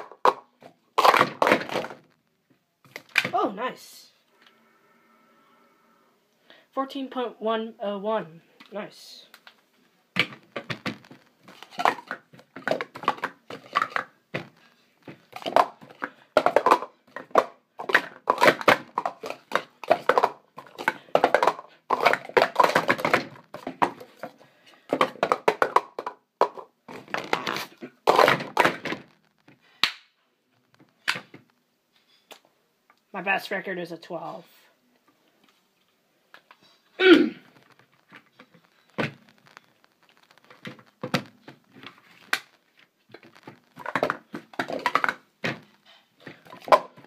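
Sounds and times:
plastic cups clacking: 0:00.0 - 0:02.1, 0:10.2 - 0:30.0, 0:37.5 - 0:47.0.

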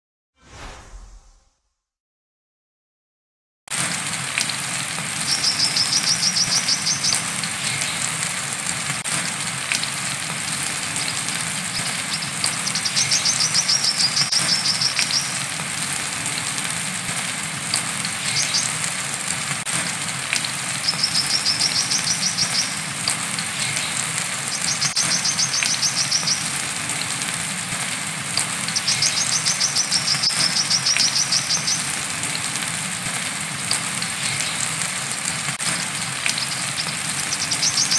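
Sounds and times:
rain hiss: 0:03.7 - 0:37.9
bird high-pitched trills: 0:11.8 - 0:15.4, 0:20.9 - 0:22.8, 0:24.5 - 0:26.5, 0:36.4 - 0:37.9.

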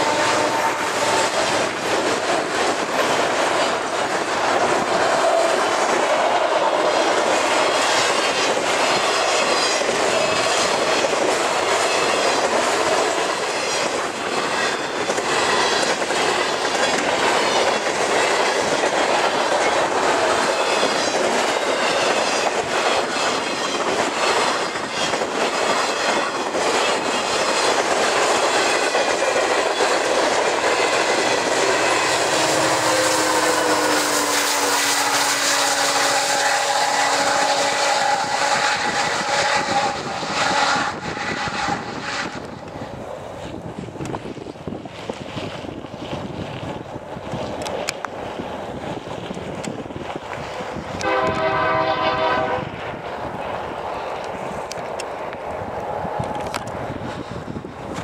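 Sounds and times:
wheels clacking over rail joints: 0:00.0 - 0:52.4
locomotive engine hum: 0:00.0 - 0:58.0
train rolling rumble: 0:00.0 - 0:58.0
flange squeals: 0:30.7 - 0:42.8.

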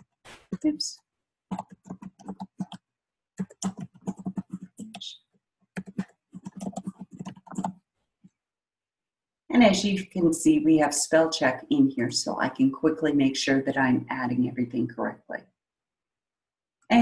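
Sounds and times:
typing on computer keyboard: 0:01.5 - 0:02.8, 0:03.4 - 0:05.2, 0:05.8 - 0:07.8.

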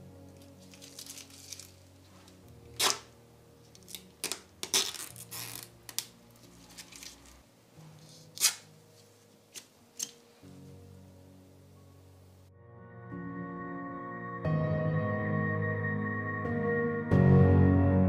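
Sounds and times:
plastic film crackling: 0:00.2 - 0:03.1, 0:03.7 - 0:07.4.

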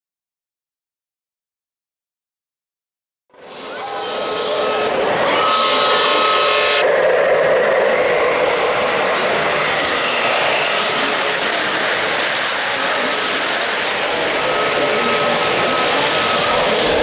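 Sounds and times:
model train wheels rumbling: 0:03.4 - 0:17.0
held tone: 0:03.5 - 0:07.9.

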